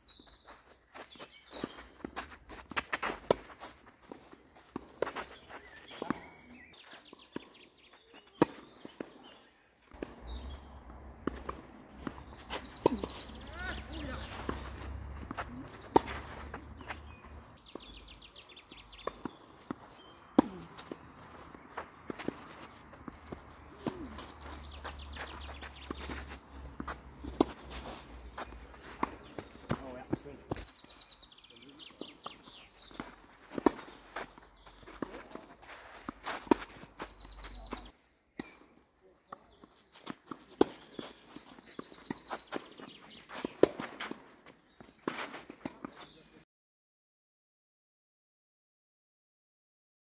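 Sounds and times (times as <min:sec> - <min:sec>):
footsteps on clay: 0:00.0 - 0:38.6, 0:39.3 - 0:46.3
tennis ball bouncing: 0:01.6 - 0:03.7, 0:09.9 - 0:18.0, 0:18.9 - 0:30.7, 0:32.0 - 0:38.6, 0:40.0 - 0:44.2.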